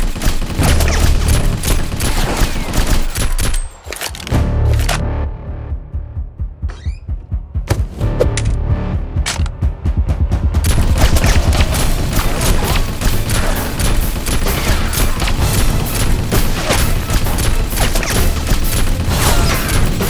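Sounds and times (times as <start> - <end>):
rapid gunfire: 0.0 - 3.7, 10.6 - 20.0
background music: 0.1 - 20.0.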